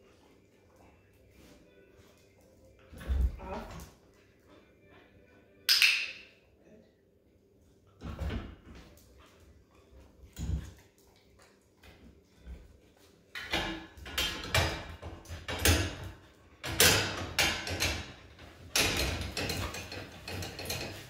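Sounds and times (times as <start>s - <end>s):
metal gate rattling: 13.4s - 21.0s.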